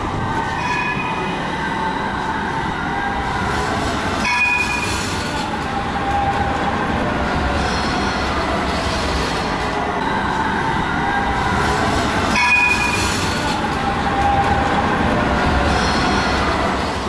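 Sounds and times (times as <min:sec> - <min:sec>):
tram wheels rumbling and rattling: 0:00.0 - 0:17.0
high wheel squeal: 0:00.4 - 0:05.5.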